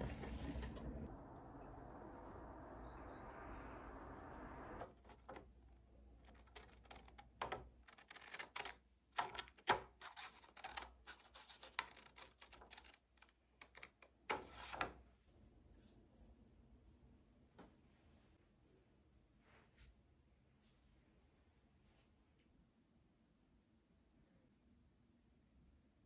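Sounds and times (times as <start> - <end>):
paper rustling: 6.1 - 15.0
scissors snipping paper: 6.2 - 14.8.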